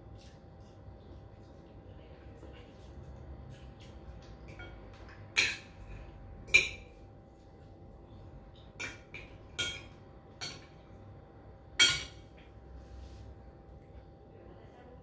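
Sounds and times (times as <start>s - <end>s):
cutlery clinking on a ceramic plate: 8.6s - 10.8s, 11.8s - 12.5s.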